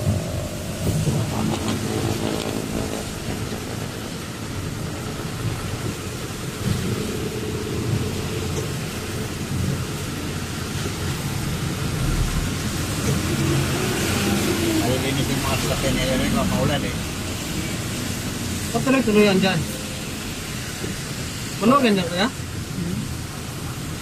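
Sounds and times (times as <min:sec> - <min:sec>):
truck engine rumble inside cab: 0:00.0 - 0:19.0
rain hiss on wet road: 0:00.0 - 0:24.0.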